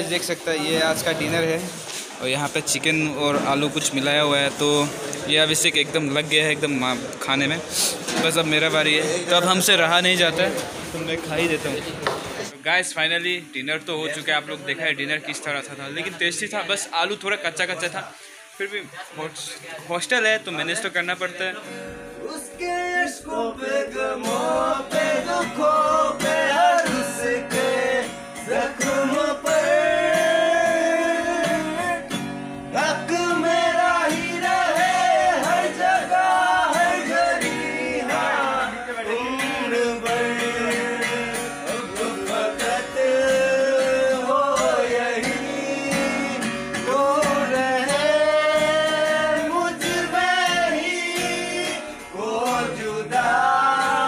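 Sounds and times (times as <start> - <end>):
acoustic guitars strumming: 0.0 - 12.5, 20.6 - 54.0
young men singing: 22.4 - 32.1, 32.7 - 54.0.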